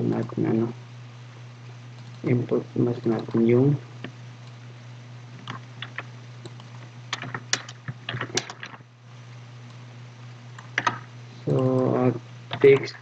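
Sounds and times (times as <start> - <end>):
steady low hum: 0.0 - 13.0
computer keyboard typing: 5.4 - 8.8, 10.6 - 13.0.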